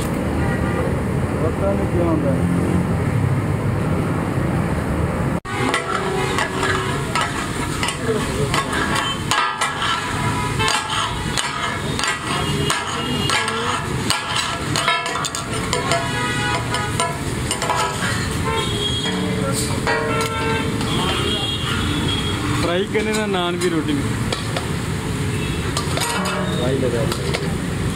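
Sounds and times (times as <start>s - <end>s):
street traffic: 0.0s - 27.9s
metal spatulas scraping griddle: 5.5s - 21.1s, 25.8s - 27.3s.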